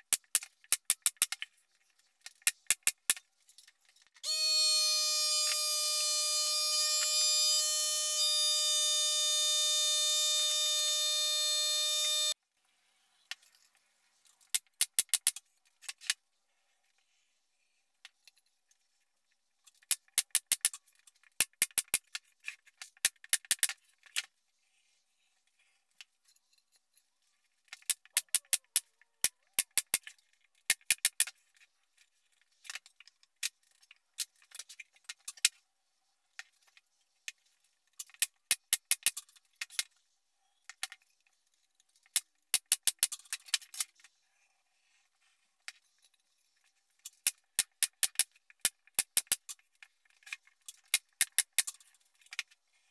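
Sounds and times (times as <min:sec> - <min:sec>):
loud buzzing tone: 0:04.3 - 0:12.4.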